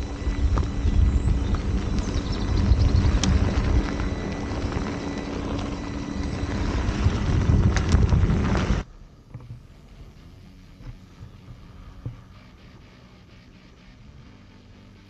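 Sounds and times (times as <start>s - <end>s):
tyre rumble on dirt: 0.0s - 8.8s
wind buffeting microphone: 0.0s - 9.7s
faint steady hum: 0.0s - 15.0s.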